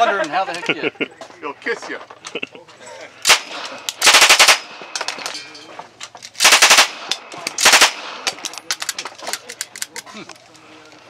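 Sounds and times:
machine pistol automatic fire: 3.2s - 5.2s, 6.4s - 8.5s.

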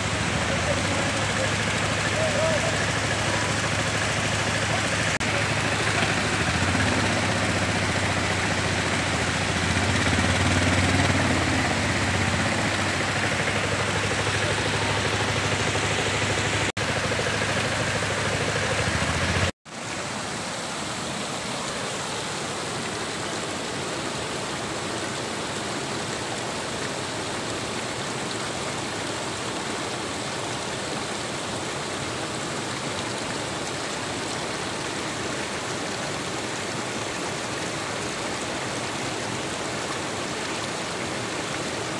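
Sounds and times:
auto-rickshaw engine humming: 0.0s - 19.6s
floodwater rushing over rocks: 0.0s - 41.9s.

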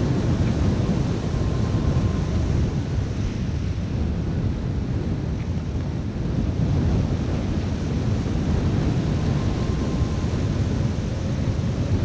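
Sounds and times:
faint thin whine: 0.0s - 3.8s, 8.0s - 12.0s
strong wind on microphone: 0.0s - 12.0s.

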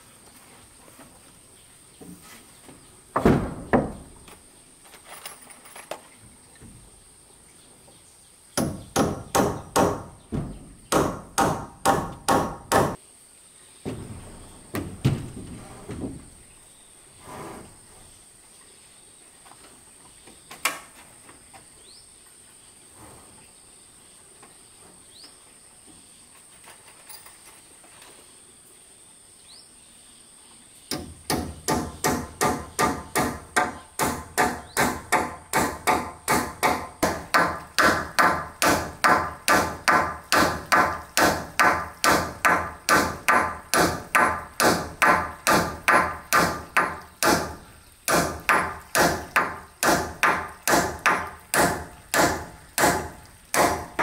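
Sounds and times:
hammer driving nails into wood: 8.6s - 13.0s, 30.9s - 54.0s.

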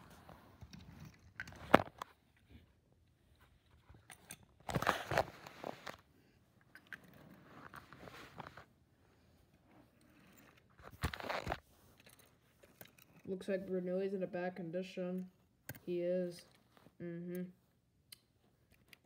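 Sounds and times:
fabric rustling and scraping: 4.6s - 6.4s, 7.0s - 13.4s.

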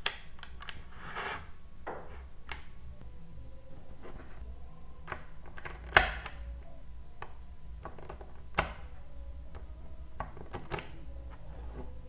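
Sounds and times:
magnetic balls clicking and snapping: 5.0s - 11.0s.

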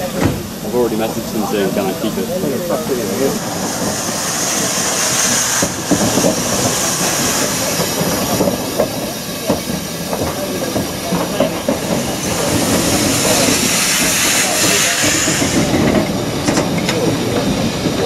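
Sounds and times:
steam hissing: 0.0s - 18.0s
steam locomotive passing slowly: 0.0s - 18.0s
wheels clanking over rail joints: 0.0s - 18.0s.

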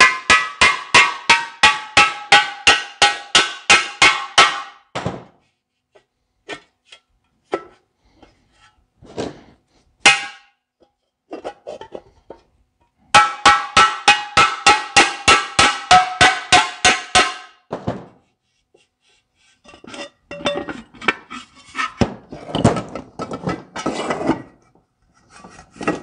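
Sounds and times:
hammer striking sheet metal: 0.0s - 5.4s, 10.0s - 10.6s, 13.1s - 18.2s.

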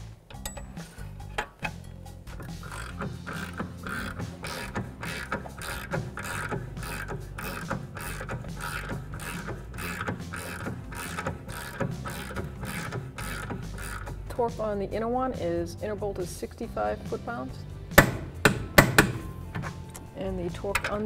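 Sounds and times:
background music with beat: 0.0s - 20.8s
ratchet wrench clicking: 0.3s - 14.2s.

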